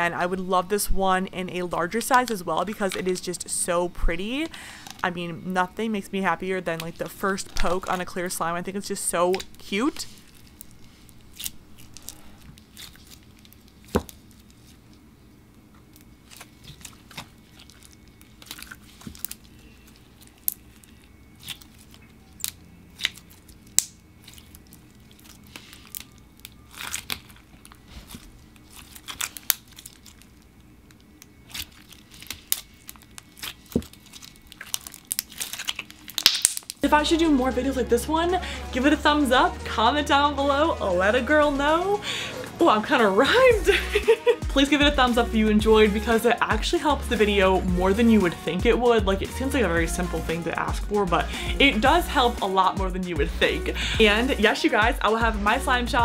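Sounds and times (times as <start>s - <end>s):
slime squeezed by hand crackling: 31.3s - 36.8s.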